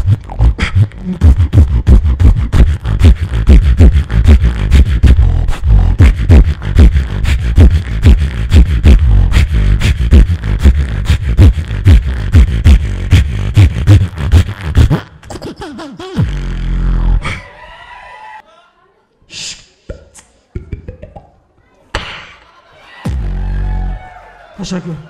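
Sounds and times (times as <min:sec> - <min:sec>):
person beatboxing into a microphone: 0:00.0 - 0:17.6, 0:19.3 - 0:21.4.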